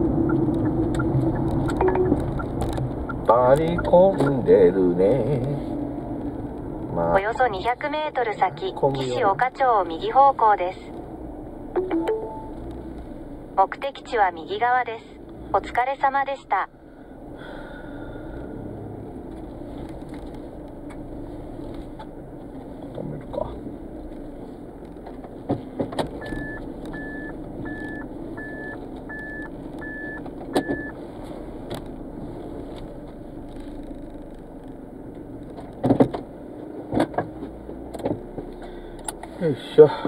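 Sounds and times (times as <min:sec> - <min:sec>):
car engine running at low speed: 0:00.0 - 0:40.0
short electronic beeps: 0:00.2 - 0:03.9, 0:11.8 - 0:12.5, 0:26.2 - 0:31.0.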